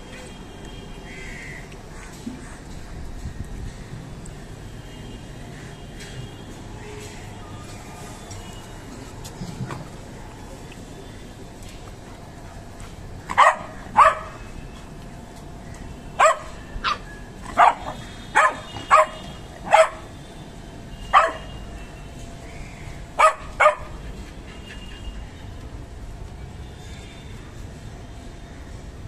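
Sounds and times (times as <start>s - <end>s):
dog barking: 13.3s - 14.4s, 16.2s - 20.1s, 21.1s - 21.5s, 23.2s - 24.0s.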